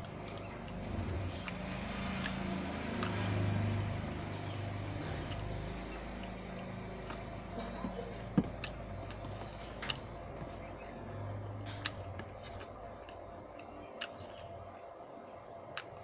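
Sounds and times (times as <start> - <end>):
sharp clicks: 0.0 - 3.5, 5.2 - 7.3, 11.4 - 14.5
chewing: 0.0 - 14.5
vehicle engine droning by: 0.0 - 14.7.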